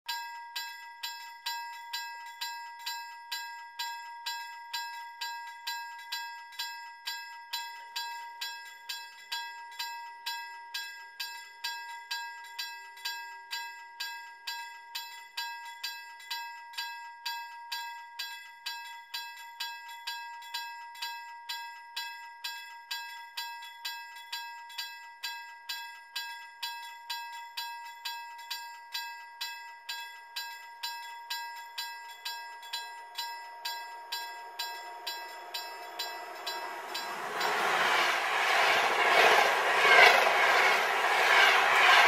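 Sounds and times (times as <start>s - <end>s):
level crossing warning bell: 26.9s - 42.0s.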